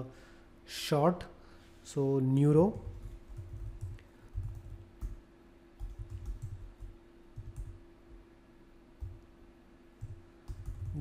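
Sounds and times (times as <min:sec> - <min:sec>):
faint electrical hum: 0:00.0 - 0:11.0
keyboard typing: 0:02.7 - 0:05.2, 0:05.8 - 0:07.8, 0:10.0 - 0:11.0.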